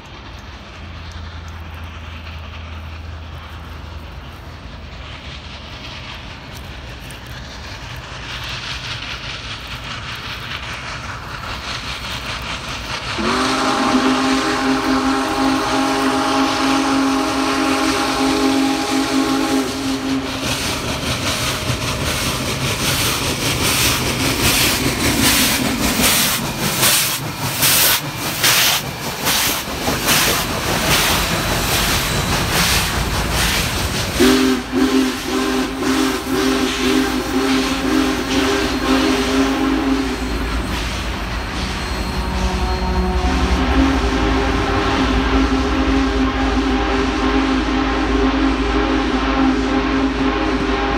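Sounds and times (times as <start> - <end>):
locomotive exhaust beats: 0.0 - 50.9
rail noise: 0.0 - 50.9
steam locomotive chime whistle: 13.2 - 20.8, 34.1 - 50.9.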